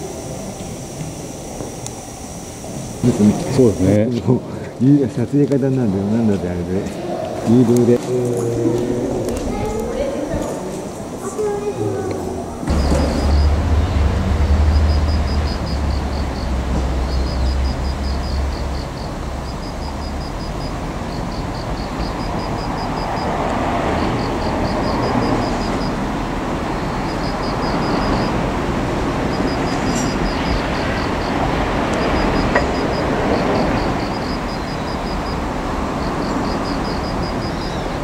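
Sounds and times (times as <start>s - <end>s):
excavator rumbling: 5.9s - 38.0s
deeper rumble: 6.8s - 38.0s
high chirps: 11.0s - 26.0s, 29.2s - 38.0s.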